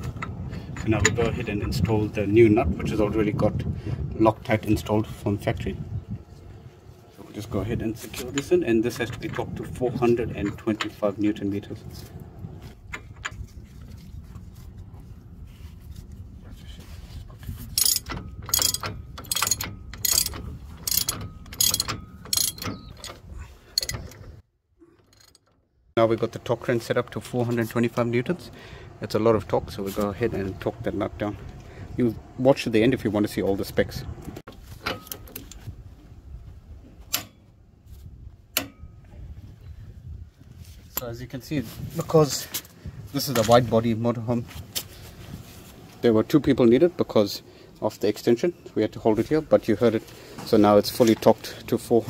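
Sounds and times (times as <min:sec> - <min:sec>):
ratchet wrench clicking: 0:17.8 - 0:23.1.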